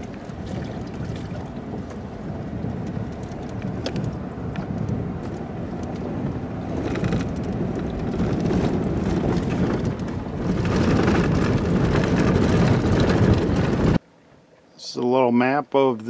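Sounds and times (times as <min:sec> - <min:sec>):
vehicle rumbling on dirt road: 0:00.0 - 0:14.7
small clicks and rattles: 0:02.8 - 0:04.2, 0:06.8 - 0:14.0.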